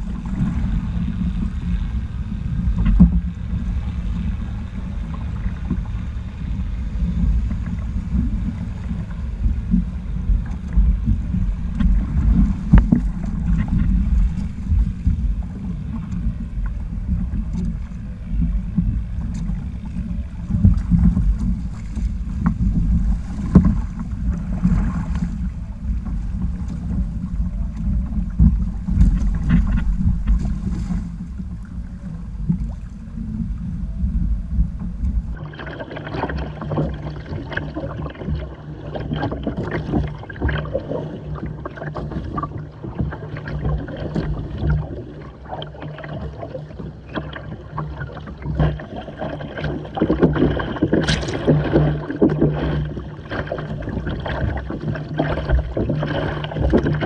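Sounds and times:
wind buffeting microphone: 0.0 - 35.4
water rushing past: 0.0 - 57.0
water slapping against hull: 0.0 - 57.0.

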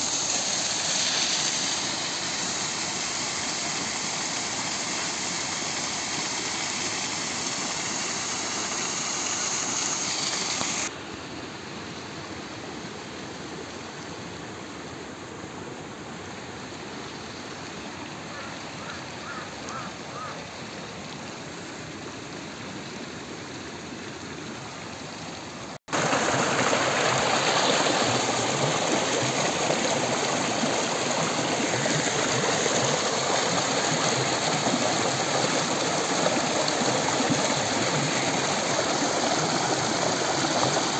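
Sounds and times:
waterfall rushing over rocks: 0.0 - 11.0, 24.9 - 40.9.

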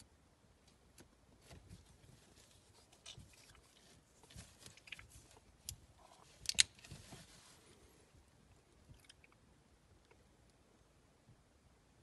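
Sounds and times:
small metal clicks and scrapes: 2.8 - 7.2.

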